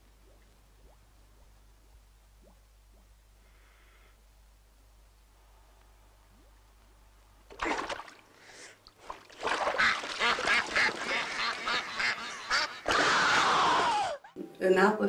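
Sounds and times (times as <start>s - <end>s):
water splashing: 7.5s - 13.2s
ducks quacking: 9.7s - 13.4s.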